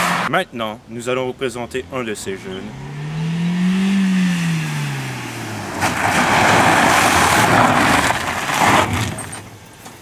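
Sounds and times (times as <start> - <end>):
car engine: 0.0 - 0.3, 1.2 - 10.0
tyres crunching on gravel: 5.5 - 10.0.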